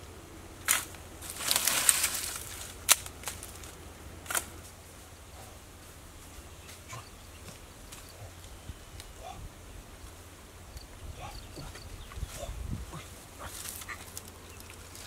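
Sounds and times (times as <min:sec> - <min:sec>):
twigs snapping underfoot: 0:00.6 - 0:04.8, 0:13.4 - 0:15.0.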